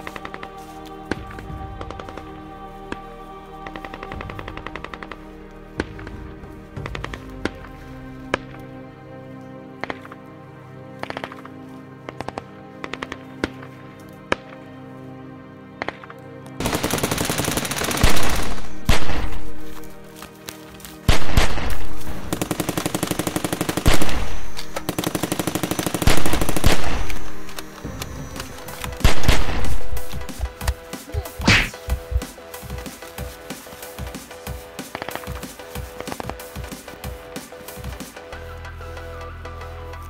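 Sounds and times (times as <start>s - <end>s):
rapid automatic gunfire: 16.6s - 19.3s, 21.1s - 27.8s, 28.4s - 30.2s
drumbeat: 27.9s - 38.3s.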